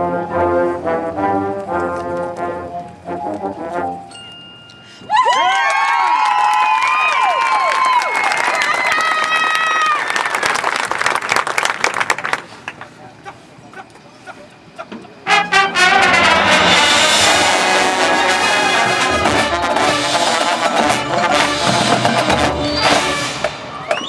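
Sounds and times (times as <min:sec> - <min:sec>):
marching band playing: 0:00.0 - 0:04.1, 0:15.2 - 0:24.0.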